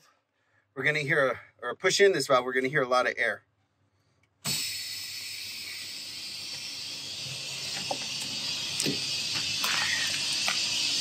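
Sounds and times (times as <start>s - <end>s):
compressed air hissing: 4.4s - 11.0s.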